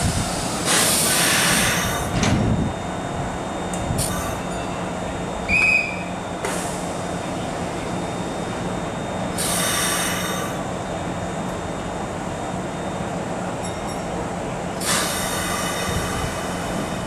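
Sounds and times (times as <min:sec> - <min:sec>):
electric train humming: 0:00.0 - 0:17.0
short high beep: 0:05.5 - 0:06.1.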